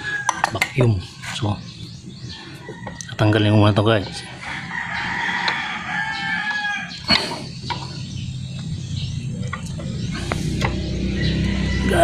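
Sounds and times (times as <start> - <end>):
rooster crowing: 0.0 - 0.6, 4.2 - 7.0, 11.0 - 12.0.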